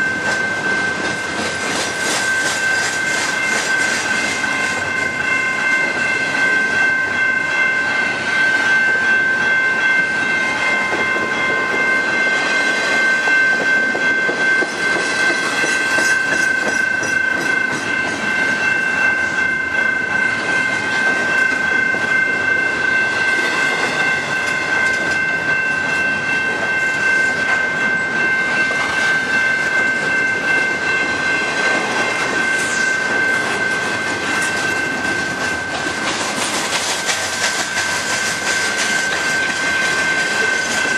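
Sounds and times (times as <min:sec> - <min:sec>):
high-pitched ringing tone: 0:00.0 - 0:36.2, 0:37.4 - 0:40.9
freight train rumbling past: 0:00.0 - 0:40.9.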